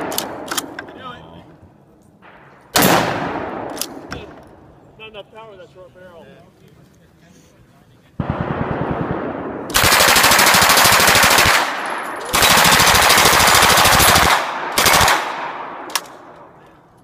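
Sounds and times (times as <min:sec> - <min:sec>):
gunshot echo: 0:02.2 - 0:04.4
rifle firing automatic bursts: 0:08.2 - 0:15.6.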